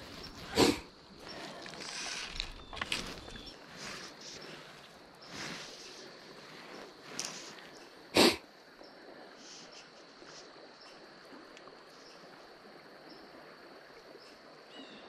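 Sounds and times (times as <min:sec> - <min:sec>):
loud sniff: 0:00.3 - 0:00.9, 0:07.2 - 0:08.4.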